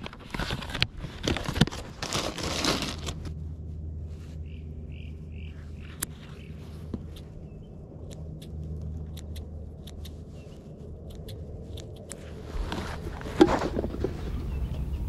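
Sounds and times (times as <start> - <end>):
loud rustling: 0.0 - 3.4.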